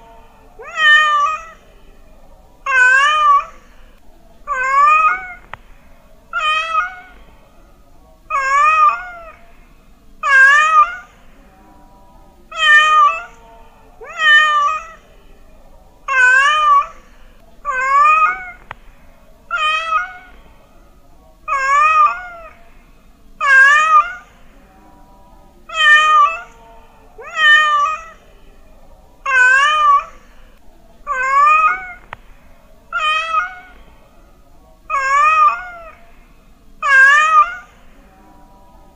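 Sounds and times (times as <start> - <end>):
cat meowing: 0.6 - 1.6, 2.7 - 3.7, 4.5 - 5.5, 6.3 - 7.2, 8.3 - 9.4, 10.2 - 11.2, 12.5 - 13.4, 14.0 - 15.0, 16.1 - 17.0, 17.7 - 18.8, 19.5 - 20.4, 21.5 - 22.6, 23.4 - 24.4, 25.7 - 26.6, 27.2 - 28.2, 29.2 - 30.2, 31.1 - 32.2, 32.9 - 33.8, 34.9 - 36.0, 36.8 - 37.8.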